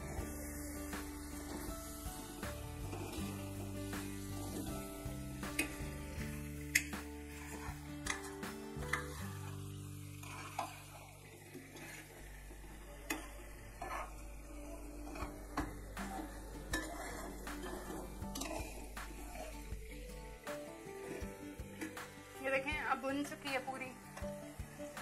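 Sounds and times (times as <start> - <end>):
soft frying sizzle: 0.0 - 25.0
metal spoon scraping a pot: 6.7 - 9.2, 10.1 - 11.1, 13.1 - 19.7.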